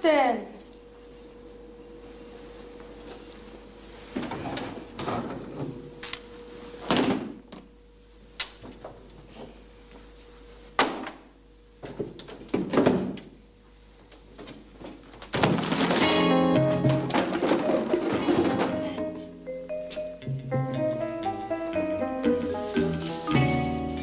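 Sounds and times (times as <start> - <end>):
suitcases knocking and thumping: 15.3 - 19.0.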